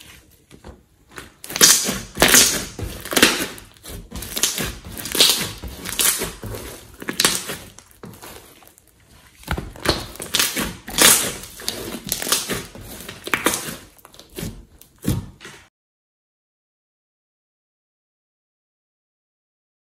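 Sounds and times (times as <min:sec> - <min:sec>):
slime squishing and popping: 0:01.2 - 0:15.2.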